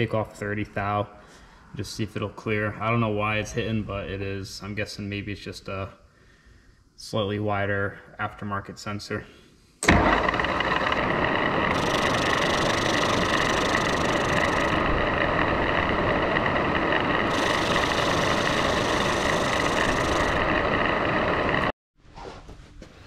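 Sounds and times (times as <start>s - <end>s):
high whine: 9.8s - 21.7s
metal lathe running: 9.8s - 21.7s.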